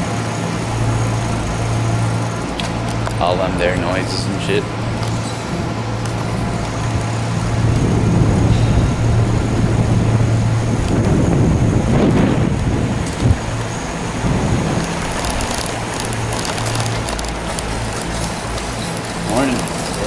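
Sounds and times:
bicycle tyres on concrete: 0:00.0 - 0:20.0
steady low hum: 0:00.0 - 0:20.0
wind rumble on microphone: 0:06.1 - 0:17.6.

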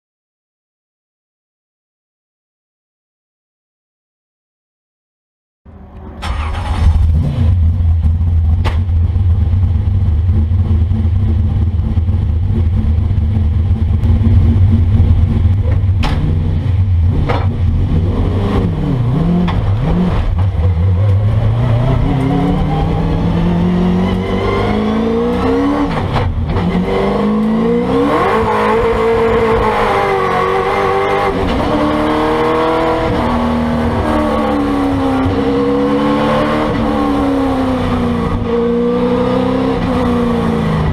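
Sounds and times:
race car engine revving: 0:05.8 - 0:40.9
sharp engine knocks: 0:15.7 - 0:16.4.

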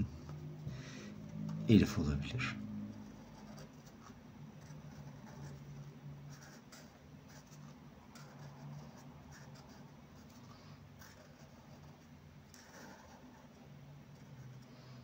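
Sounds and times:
low steady hum: 0:00.0 - 0:15.0
marker scratching on paper: 0:02.9 - 0:15.0.

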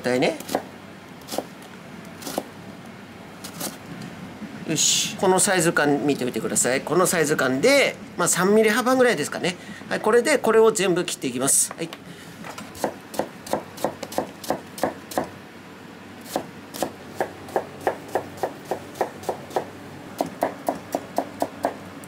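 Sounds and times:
knife chopping on plastic board: 0:12.8 - 0:15.3.

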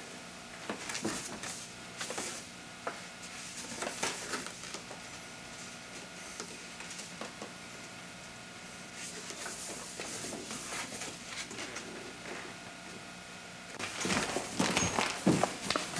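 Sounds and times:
paper rustling and crinkling: 0:03.3 - 0:04.9, 0:13.8 - 0:15.9.

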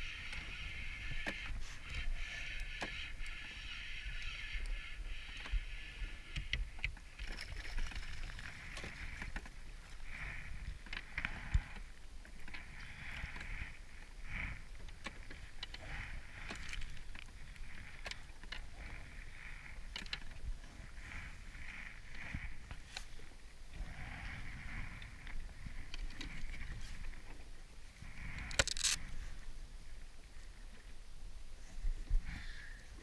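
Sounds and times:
wind rumble on microphone: 0:00.0 - 0:33.0
fishing gear clicks and knocks: 0:06.5 - 0:09.6, 0:14.8 - 0:20.6, 0:28.4 - 0:29.1.

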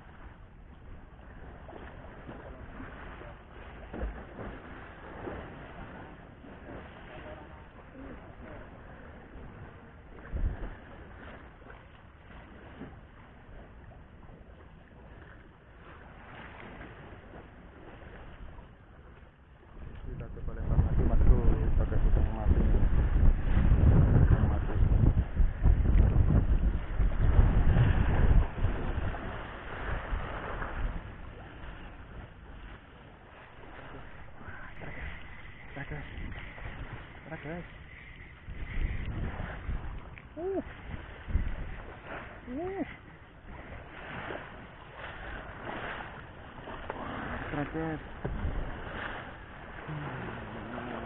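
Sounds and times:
sea waves washing: 0:00.0 - 0:51.0
wind rumbling on microphone: 0:00.0 - 0:51.0
low thump: 0:48.2 - 0:48.7.

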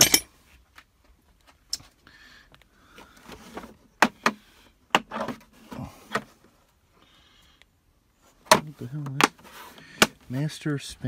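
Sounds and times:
plastic cases knocking and clicking: 0:03.3 - 0:05.5, 0:08.4 - 0:10.2.

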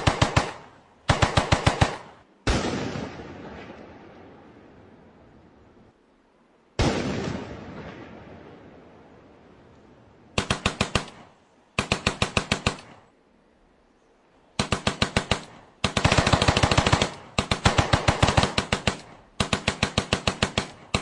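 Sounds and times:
automatic gunfire bursts: 0:00.0 - 0:02.6, 0:10.4 - 0:13.1, 0:14.6 - 0:21.0.

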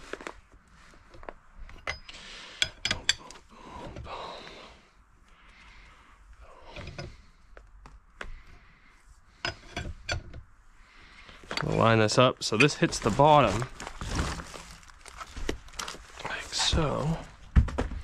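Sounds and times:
metal clicks and knocks: 0:01.7 - 0:03.4, 0:09.4 - 0:10.5.

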